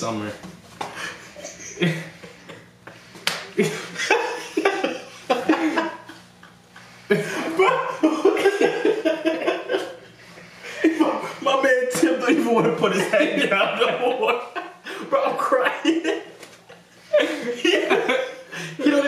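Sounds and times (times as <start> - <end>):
men laughing hard: 1.0 - 11.4, 12.0 - 19.0
sharp smacks: 3.2 - 3.5.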